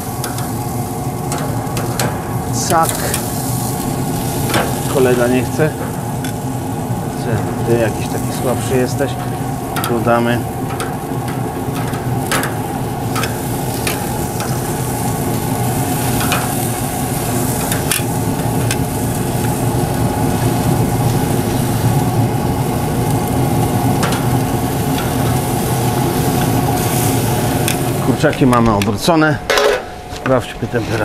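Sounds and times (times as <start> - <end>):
chicken wings sizzling: 0.0 - 29.2
grill fan humming: 0.0 - 31.0
tongs clicking against grate: 0.2 - 0.6, 9.2 - 10.1, 10.7 - 14.7, 16.1 - 16.8, 17.6 - 19.6, 24.0 - 25.4.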